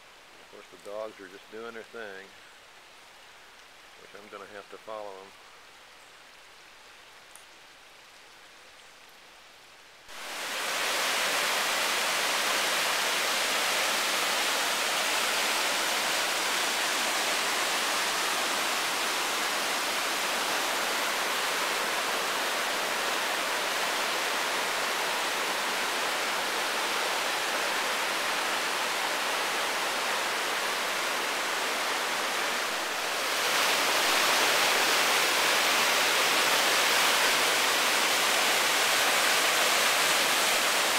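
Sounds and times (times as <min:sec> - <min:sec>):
quiet hiss: 0:00.0 - 0:40.9
rushing whitewater: 0:10.1 - 0:40.9.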